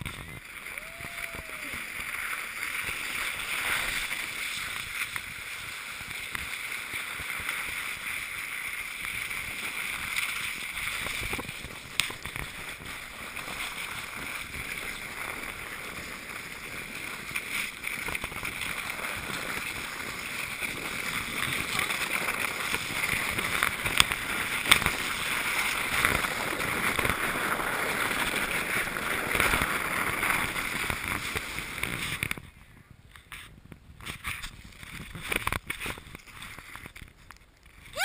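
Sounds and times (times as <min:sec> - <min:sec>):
sled scraping over snow: 0:00.0 - 0:38.0.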